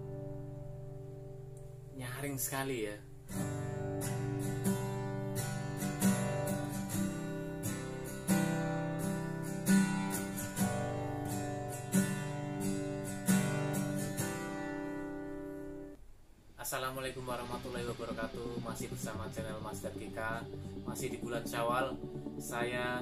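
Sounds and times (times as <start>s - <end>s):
acoustic guitar strumming: 3.2s - 16.0s, 17.3s - 23.0s.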